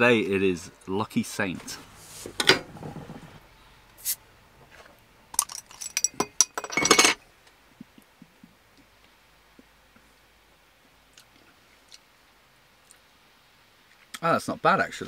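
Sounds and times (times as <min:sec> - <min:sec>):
bottle opening hiss: 0:04.0 - 0:04.2.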